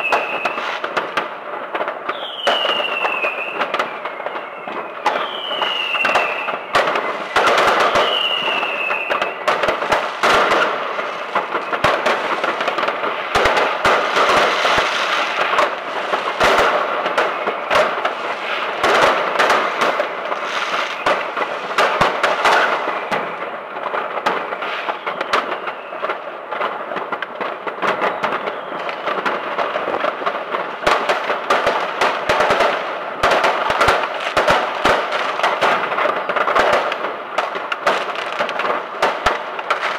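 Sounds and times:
firework whistles: 0.0 - 36.9
fireworks popping and banging: 0.0 - 39.9.

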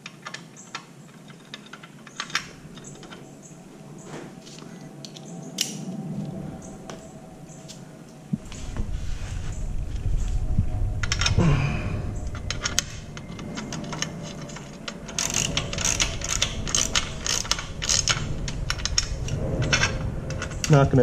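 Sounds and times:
handling noise: 0.0 - 21.0
socket ratchet clicking: 13.6 - 19.1.

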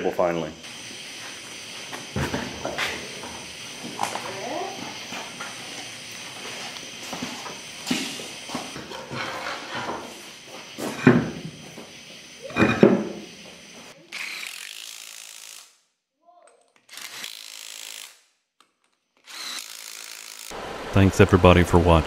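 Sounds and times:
impact wrench running: 10.5 - 15.8, 16.8 - 18.2, 19.2 - 20.6.

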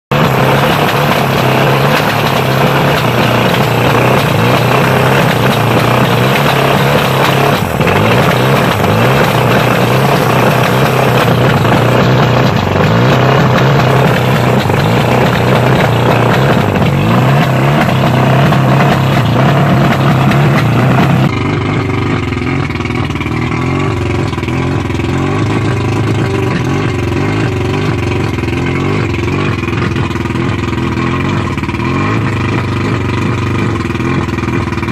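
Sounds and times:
outboard engine idling: 0.1 - 34.9.

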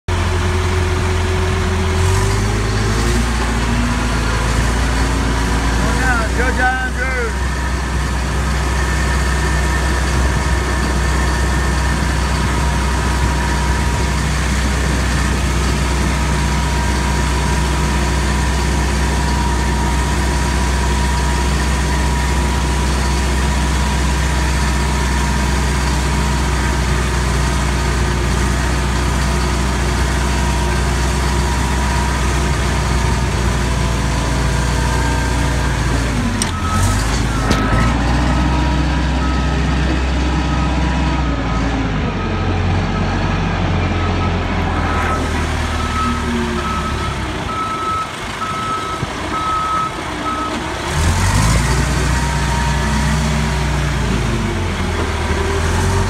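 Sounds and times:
vehicle engine running: 0.1 - 56.0.

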